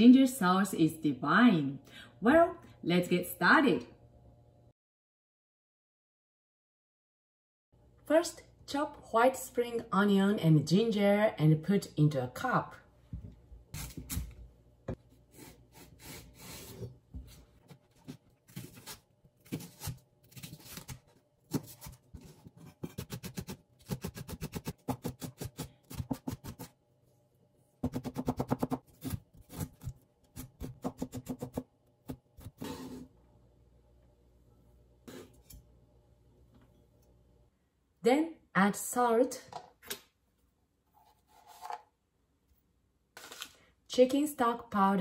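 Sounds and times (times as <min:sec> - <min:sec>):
knife chopping on cutting board: 0:22.7 - 0:26.7, 0:27.8 - 0:33.0.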